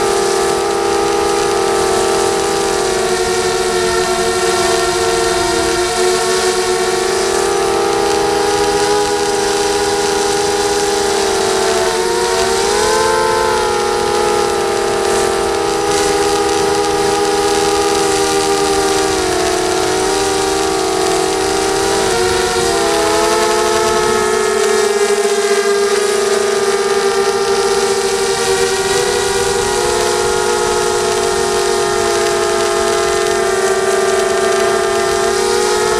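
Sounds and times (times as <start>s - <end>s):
drone motors whining: 0.0s - 35.9s.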